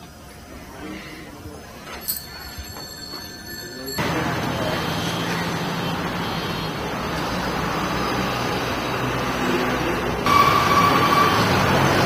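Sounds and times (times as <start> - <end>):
held high tone: 1.9 - 4.8
passing vehicles rumble: 4.0 - 12.0.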